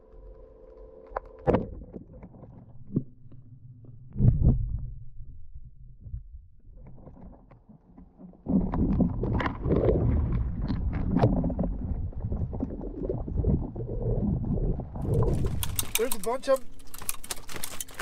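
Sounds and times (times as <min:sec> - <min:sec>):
underwater water noise: 0:00.0 - 0:18.0
clicks and knocks: 0:15.0 - 0:18.0.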